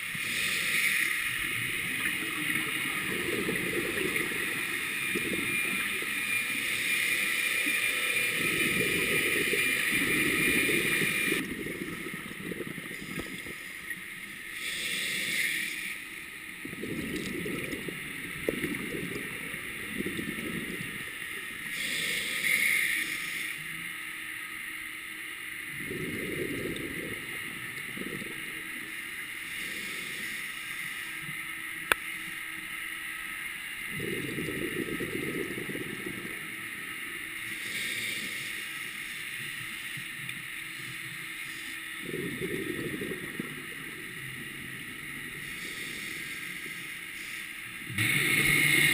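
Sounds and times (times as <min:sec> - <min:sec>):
exhaled bubbles rumbling: 0:00.0 - 0:14.2, 0:16.5 - 0:21.6, 0:25.7 - 0:29.0, 0:33.9 - 0:37.1, 0:41.9 - 0:45.5, 0:47.8 - 0:48.9
diver breathing through regulator: 0:00.2 - 0:05.6, 0:14.5 - 0:16.1, 0:21.7 - 0:23.6, 0:29.4 - 0:30.8, 0:37.5 - 0:39.3, 0:45.3 - 0:48.9.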